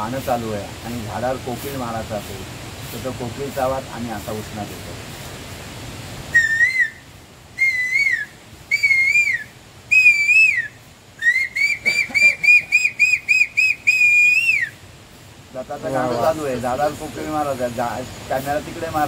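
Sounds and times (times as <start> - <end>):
man whistling through fingers: 6.3 - 7.0, 7.6 - 14.8.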